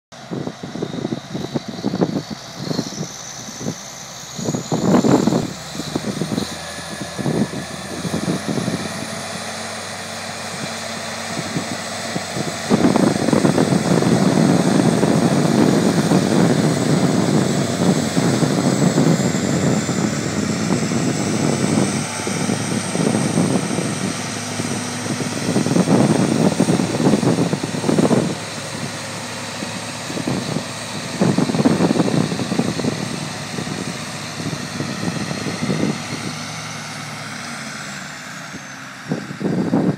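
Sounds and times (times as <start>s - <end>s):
tractor diesel engines working: 0.1s - 39.9s.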